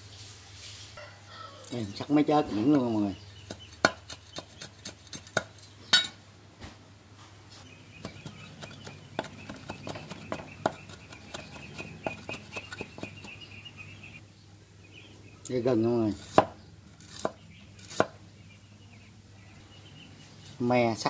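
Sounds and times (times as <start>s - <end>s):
cleaver chopping on wooden block: 3.5s - 6.1s, 8.0s - 13.3s, 16.2s - 18.2s.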